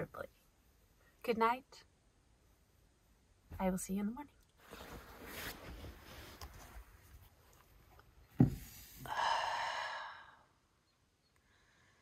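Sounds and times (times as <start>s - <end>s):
faint rustling: 4.5s - 9.1s
sudden thump: 8.4s - 8.7s
breathy rush of noise: 8.7s - 10.6s.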